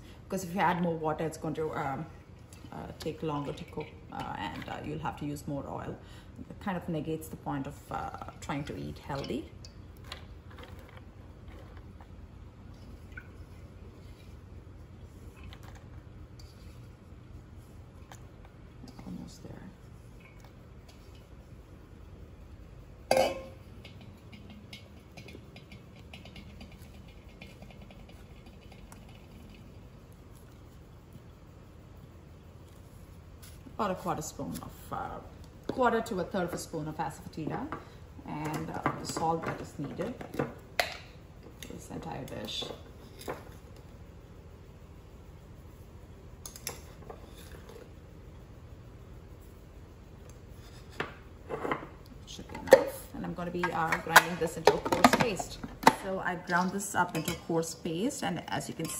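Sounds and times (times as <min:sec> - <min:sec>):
low steady hum: 0:00.0 - 0:58.9
metal pan clanking: 0:23.1 - 0:24.1.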